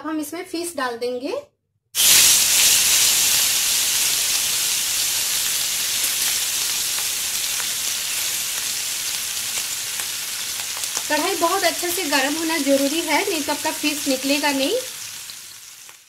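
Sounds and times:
fish sizzling in hot oil: 2.0s - 16.0s
small crackles: 6.0s - 11.4s, 15.2s - 16.0s.

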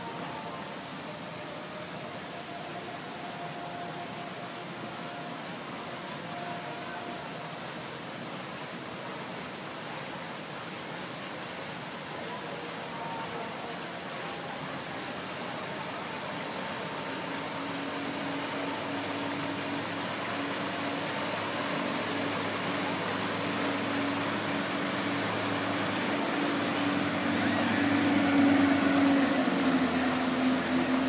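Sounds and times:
boat motor humming: 14.0s - 31.0s
water hissing: 14.2s - 31.0s.

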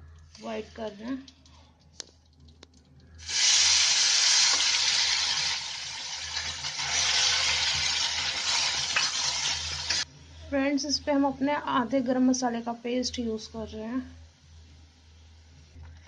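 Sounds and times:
onion paste sizzling in hot oil: 3.2s - 10.1s.

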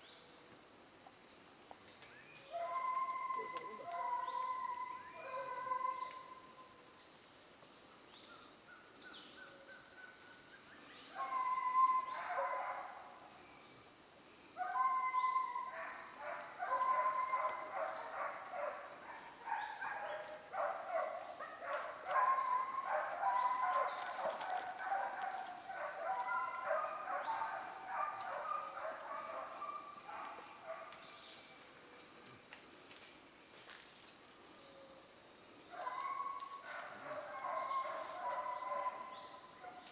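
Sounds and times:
animal calls: 2.6s - 6.2s.

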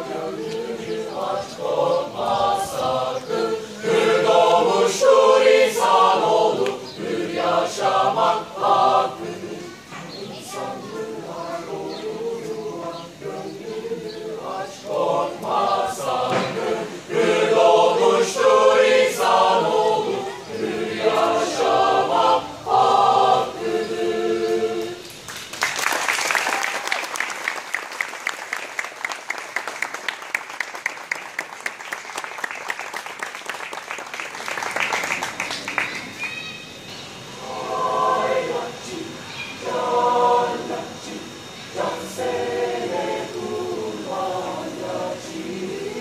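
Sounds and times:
choir singing unaccompanied: 0.0s - 25.3s, 34.4s - 46.0s
audience applause: 25.3s - 36.2s.

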